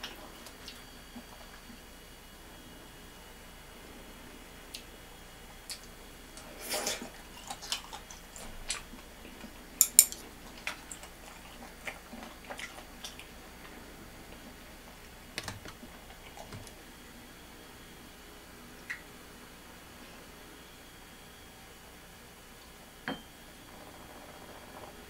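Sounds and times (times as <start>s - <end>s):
chewing: 5.6s - 14.4s, 15.8s - 16.8s
chopsticks clicking on dishes: 9.8s - 10.2s.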